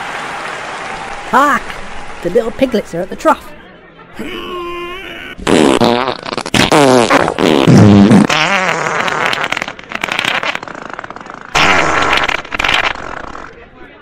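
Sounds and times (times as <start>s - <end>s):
comic squealing fart noises: 4.2s - 13.6s.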